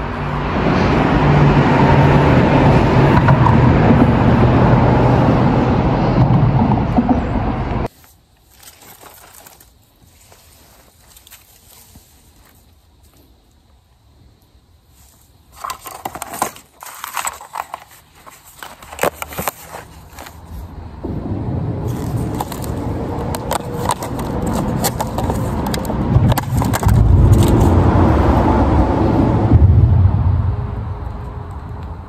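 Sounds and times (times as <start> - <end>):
low rumble: 0.0 - 7.9, 20.9 - 24.5, 25.2 - 32.0.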